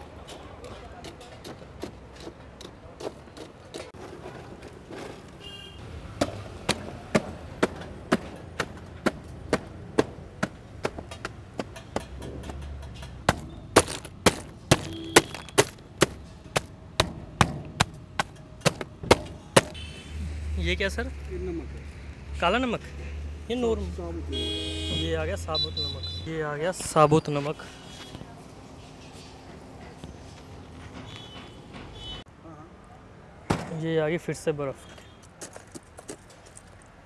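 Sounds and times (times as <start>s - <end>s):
ice being struck in metal box: 13.2s - 19.8s.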